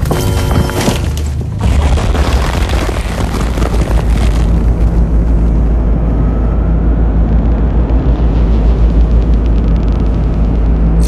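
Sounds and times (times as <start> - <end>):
crackling layer: 0.3 - 11.0
deep engine rumble: 0.9 - 11.0
faint hum: 2.8 - 11.0.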